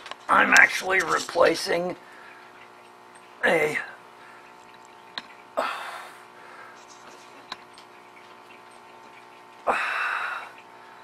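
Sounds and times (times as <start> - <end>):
electrical hum: 0.0 - 11.0
breathy exhales: 5.6 - 6.8, 9.6 - 11.0.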